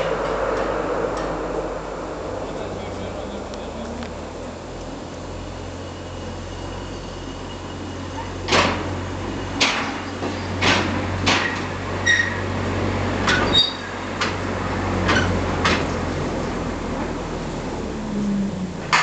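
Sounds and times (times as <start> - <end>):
diesel engine running: 0.0 - 19.0
metal clanks and wheel squeals: 5.6 - 14.4, 15.0 - 16.1.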